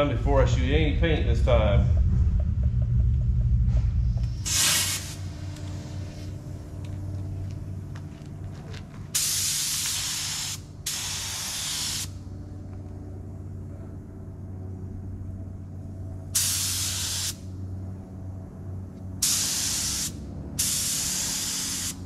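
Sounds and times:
spray gun hiss: 4.4 - 6.2, 9.2 - 12.1, 16.4 - 17.4, 19.2 - 22.0
paint spray gun spraying: 4.5 - 5.3, 9.2 - 12.1, 16.4 - 17.4, 19.2 - 22.0.

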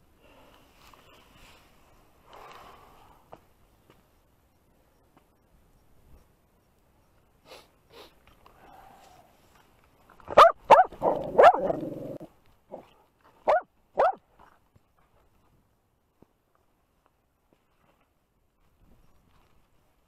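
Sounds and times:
dog barking: 10.3 - 11.8, 12.7 - 14.2.

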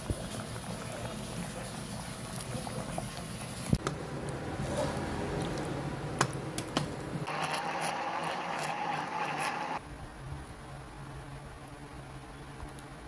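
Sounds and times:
blender running: 7.3 - 9.8.

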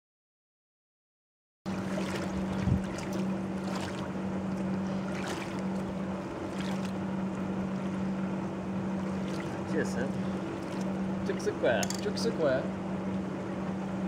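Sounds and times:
water splashing: 1.7 - 8.0, 8.9 - 11.4
low hum: 1.7 - 14.0
wind on microphone: 2.2 - 3.2.

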